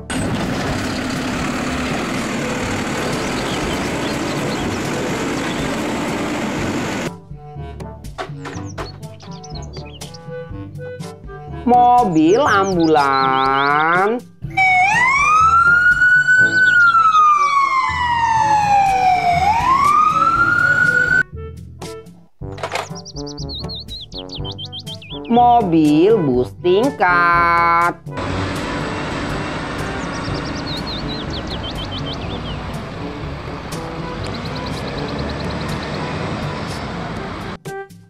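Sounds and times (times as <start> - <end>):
garbage truck engine running: 0.0 - 7.1, 28.1 - 37.6
ambulance siren wailing: 14.5 - 21.3.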